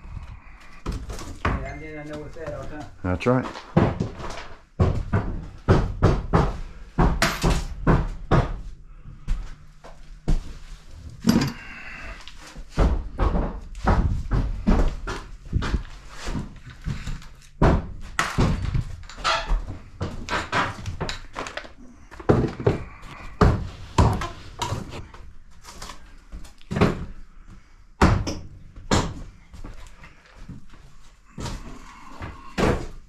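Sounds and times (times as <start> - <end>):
footsteps on wooden floor: 0.8 - 6.6, 11.6 - 21.1, 22.1 - 25.6
tools and boards clattering: 11.2 - 12.0, 12.7 - 25.0.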